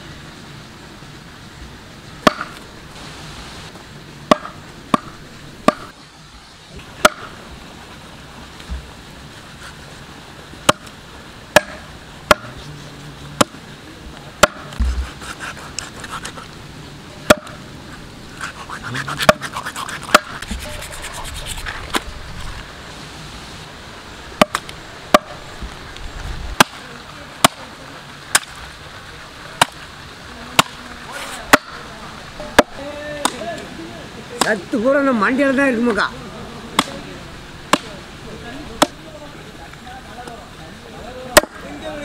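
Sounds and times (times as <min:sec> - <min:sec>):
cleaver chopping on wooden block: 0:02.2 - 0:02.6, 0:04.3 - 0:05.9, 0:07.0 - 0:07.3, 0:11.6 - 0:12.6, 0:14.4 - 0:15.4, 0:17.3 - 0:17.6, 0:20.1 - 0:20.4.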